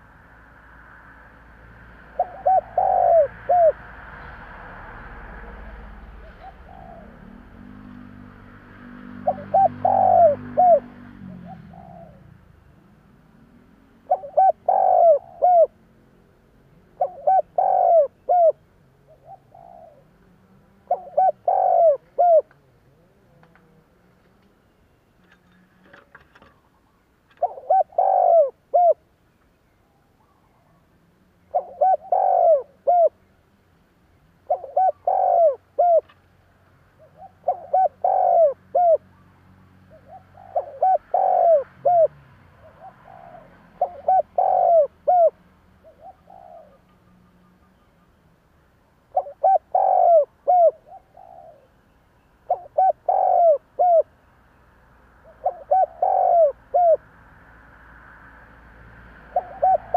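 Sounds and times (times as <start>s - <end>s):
dove cooing: 2.0s - 3.9s, 4.9s - 16.0s, 16.8s - 24.4s, 27.3s - 29.0s, 30.2s - 33.3s, 34.4s - 39.2s, 39.8s - 47.8s, 49.1s - 51.8s, 52.4s - 54.1s, 55.2s - 57.1s, 59.2s - 59.9s.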